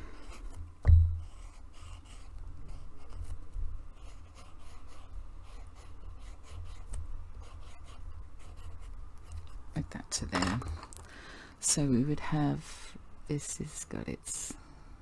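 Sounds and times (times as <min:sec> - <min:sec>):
pencil scratching on paper: 0:00.2 - 0:00.6, 0:01.2 - 0:09.6.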